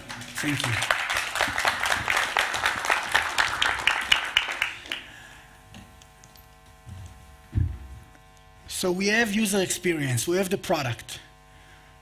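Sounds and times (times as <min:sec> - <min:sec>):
audience applauding: 0:00.0 - 0:05.2
faint steady hum: 0:00.0 - 0:12.0
short low thump: 0:07.5 - 0:08.0.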